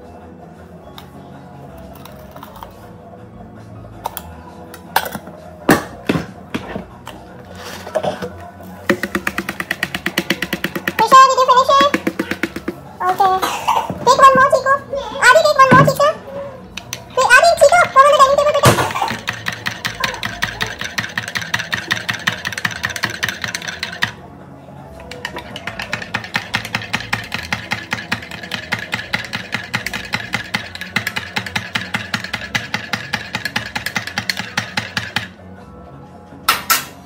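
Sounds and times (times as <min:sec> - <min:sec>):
metal spoon stirring in mug: 0:17.4 - 0:24.2, 0:25.0 - 0:35.3.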